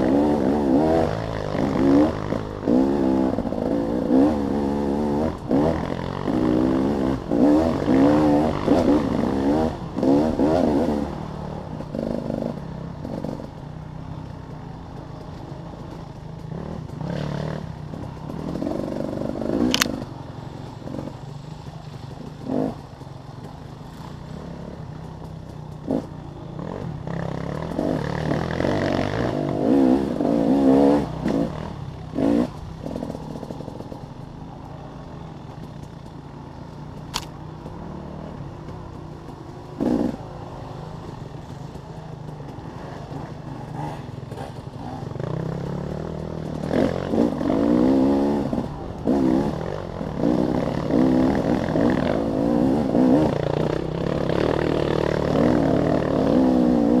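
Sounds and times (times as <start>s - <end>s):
dirt bike engine revving: 0.0s - 13.8s, 14.9s - 57.0s
sharp click: 37.1s - 37.4s.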